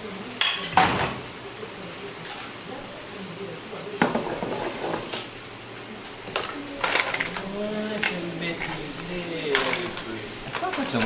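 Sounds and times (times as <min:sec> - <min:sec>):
food sizzling in oil: 0:00.0 - 0:11.0
pan clinking: 0:06.4 - 0:11.0.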